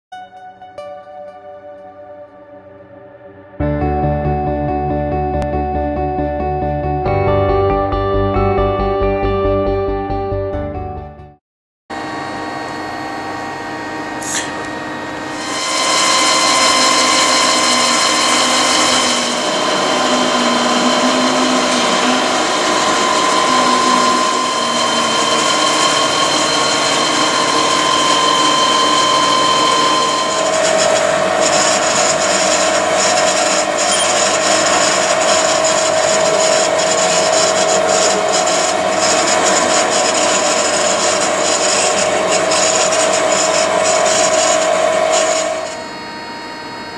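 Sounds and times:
lathe machine whine: 11.9 - 46.9
noisy machine hum: 11.9 - 46.9.

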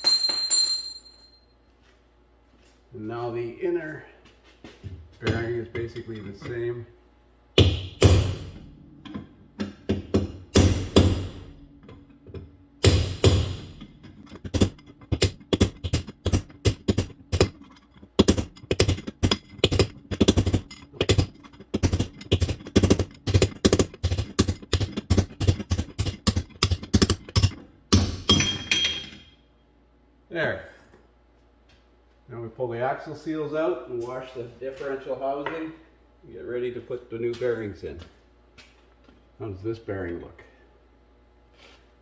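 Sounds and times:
hammer striking steel punch: 7.6 - 11.6, 12.8 - 13.9, 18.2 - 29.3.

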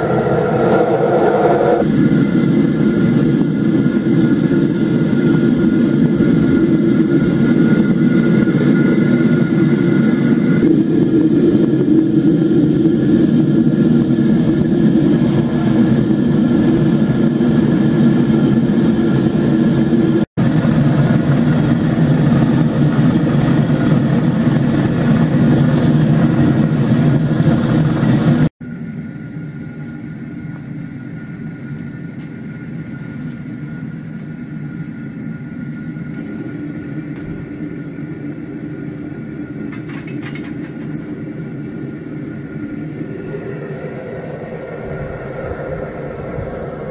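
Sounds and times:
gas burner flame roaring: 0.0 - 28.5.

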